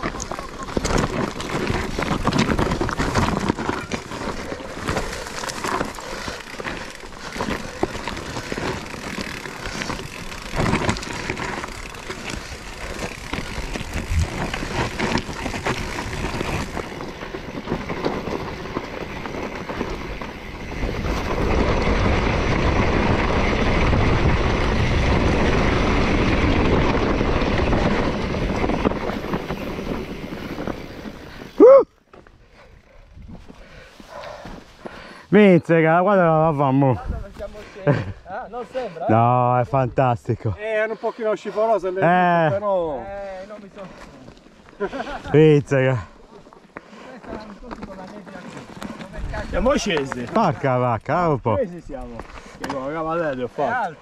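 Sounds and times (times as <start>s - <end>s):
vehicle jolting and rattling: 0.0s - 31.4s.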